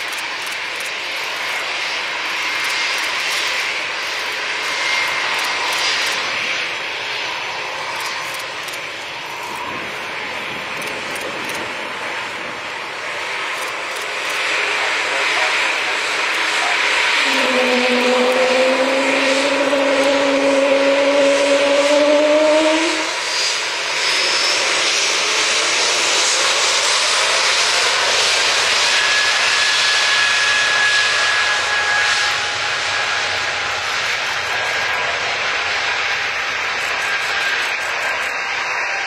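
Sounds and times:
jet engines taxiing: 0:00.0 - 0:39.0
low droning tone: 0:14.8 - 0:23.8.

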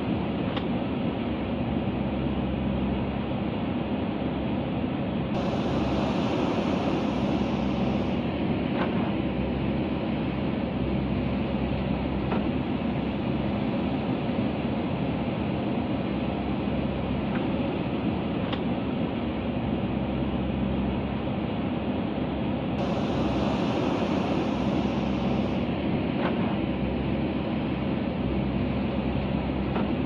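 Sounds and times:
diesel engine running: 0:05.4 - 0:18.1, 0:22.8 - 0:30.0.

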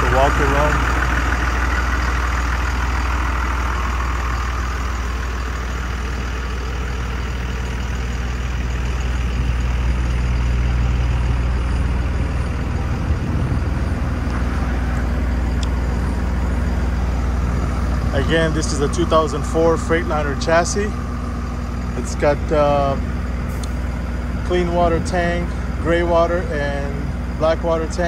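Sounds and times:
heavy engine idling: 0:00.0 - 0:28.0.

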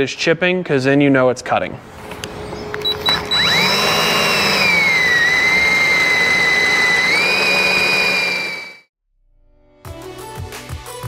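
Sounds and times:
cordless drill whining through metal: 0:02.7 - 0:08.9.

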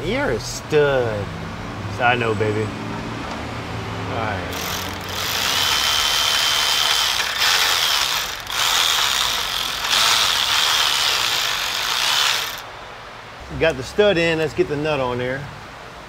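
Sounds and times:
electric ratchet whining and rattling: 0:04.5 - 0:12.7.

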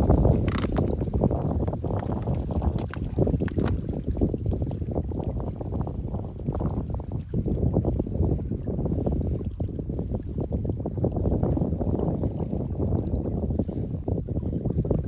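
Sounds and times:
wind buffeting microphone: 0:00.0 - 0:15.0
light clicks and rustles: 0:00.4 - 0:00.9, 0:02.2 - 0:03.8.

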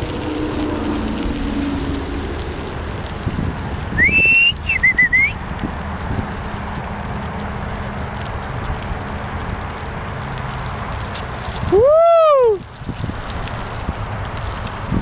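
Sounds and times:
moving along paved path: 0:00.0 - 0:15.0
person whistling: 0:04.0 - 0:05.4.

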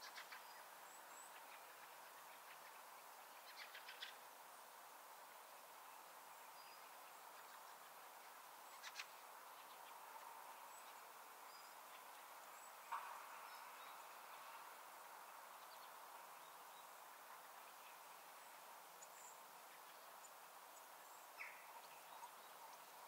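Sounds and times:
soft steady hiss: 0:00.0 - 0:23.0.

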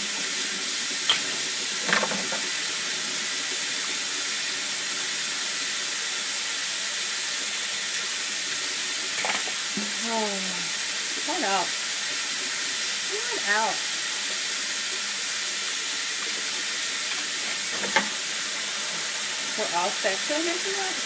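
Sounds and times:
tap water running into sink: 0:00.0 - 0:21.0
dishes clinking: 0:01.1 - 0:02.5, 0:09.2 - 0:09.6, 0:17.1 - 0:18.2.

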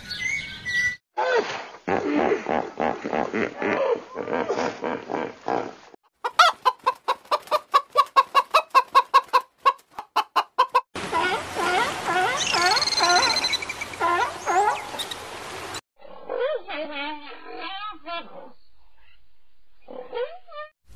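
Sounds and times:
hen clucking: 0:06.2 - 0:13.4.

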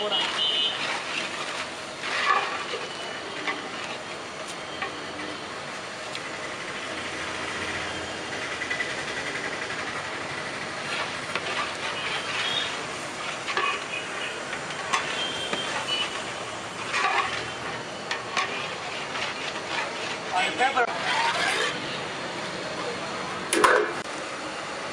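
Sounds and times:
metal spatula scraping a pot: 0:00.0 - 0:04.1, 0:10.8 - 0:22.0.

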